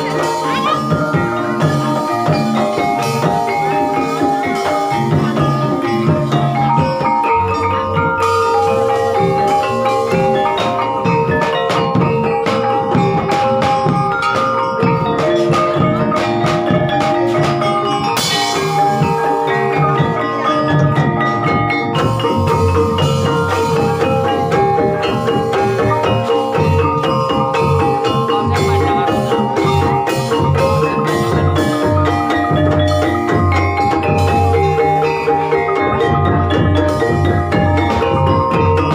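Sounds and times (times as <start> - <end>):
drums: 0.0 - 38.9
tuned mallet instruments: 0.0 - 38.9.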